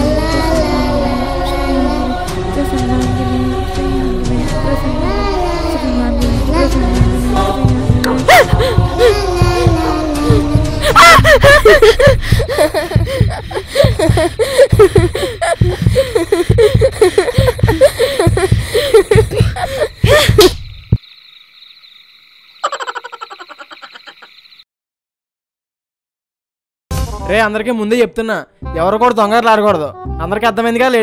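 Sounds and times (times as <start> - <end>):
woman screaming in fright: 8.3 - 20.5.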